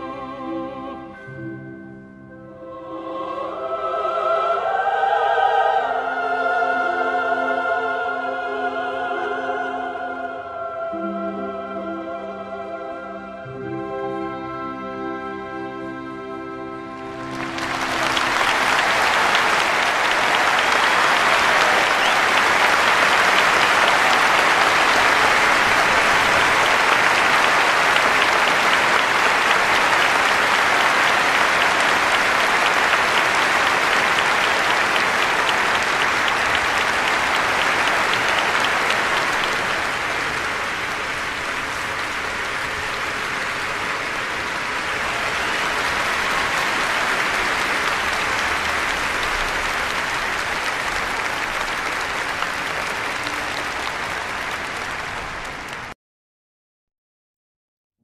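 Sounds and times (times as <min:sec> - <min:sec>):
orchestral music: 0:00.0 - 0:55.7
crowd clapping: 0:17.0 - 0:56.0.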